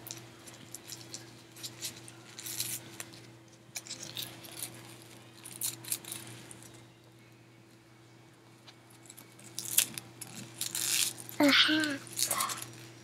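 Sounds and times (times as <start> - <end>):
faint steady hum: 0.0 - 13.0
plastic packet crinkling: 9.0 - 13.0.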